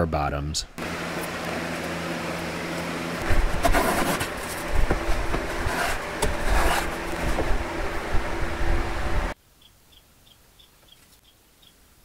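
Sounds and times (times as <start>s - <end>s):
box fan humming: 0.8s - 9.4s
hand tool scraping wood: 3.2s - 7.6s.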